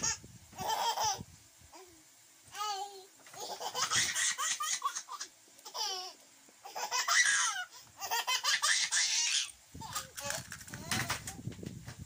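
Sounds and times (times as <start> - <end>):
young children laughing: 3.4 - 9.5.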